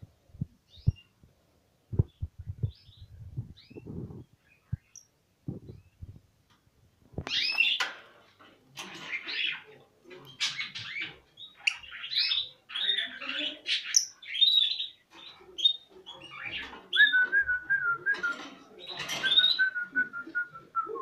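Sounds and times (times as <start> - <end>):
lovebirds chattering: 8.8 - 17.4.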